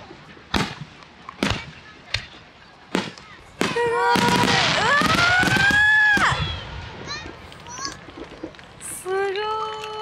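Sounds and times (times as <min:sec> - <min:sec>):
fireworks crackling: 0:00.4 - 0:10.0
firework bangs: 0:02.9 - 0:07.2
fireworks whistling upward: 0:03.0 - 0:07.0.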